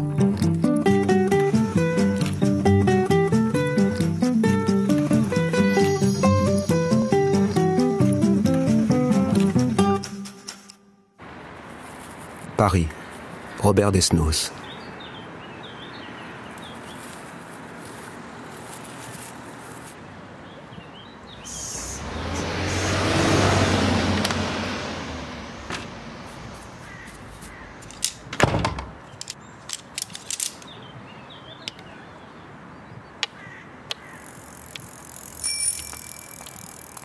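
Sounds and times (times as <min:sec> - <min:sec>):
vehicle passing: 0:21.2 - 0:28.1
sharp clicks and ticks: 0:34.6 - 0:37.0
short bell-like ring: 0:35.4 - 0:36.4.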